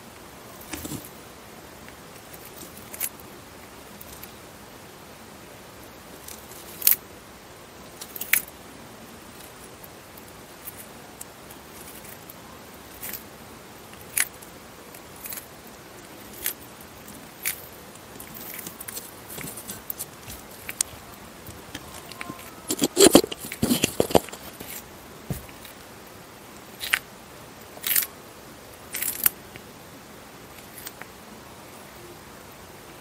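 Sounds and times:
tortoise crunching leafy greens: 0:09.2 - 0:25.9, 0:26.6 - 0:27.1, 0:27.7 - 0:28.2, 0:28.8 - 0:29.4.

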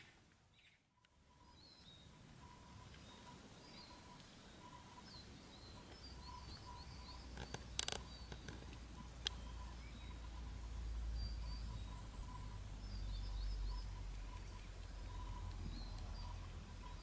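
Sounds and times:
distant birds chirping: 0:00.0 - 0:17.0
sharp clicks: 0:07.3 - 0:09.4.

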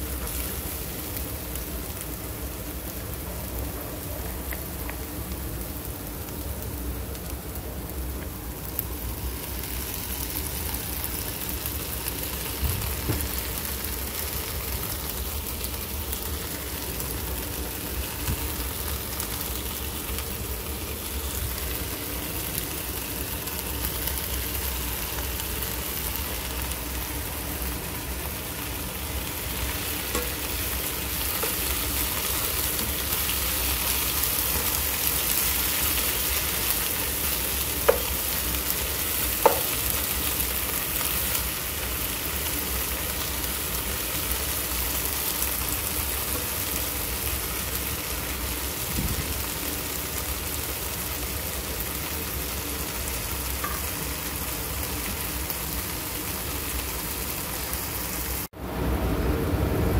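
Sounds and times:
vegetables sizzling in a skillet: 0:00.0 - 0:59.9
spatula knocking the pan: 0:39.4 - 0:39.7.

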